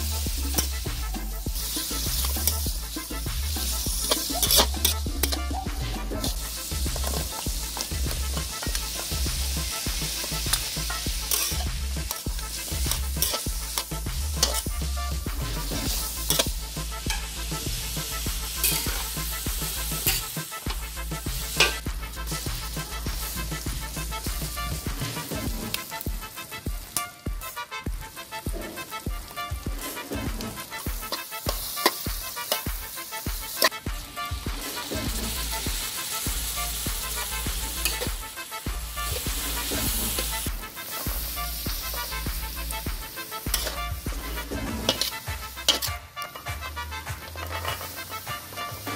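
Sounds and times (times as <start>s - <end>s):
bass-heavy background music: 0.0s - 48.9s
food sizzling in a wok: 0.0s - 48.9s
metal spatula scraping a pan: 0.0s - 48.9s
spatula clanks: 4.0s - 6.4s, 10.5s - 12.3s, 12.9s - 14.7s, 16.2s - 17.3s, 18.6s - 19.0s, 21.6s - 21.8s, 43.5s - 43.9s, 44.8s - 46.6s.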